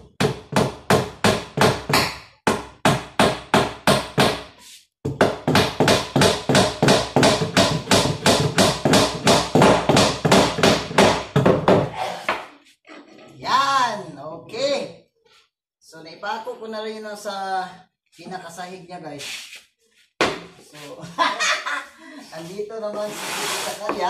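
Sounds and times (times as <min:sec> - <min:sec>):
hammer driving nails into wood: 0:05.2 - 0:11.8.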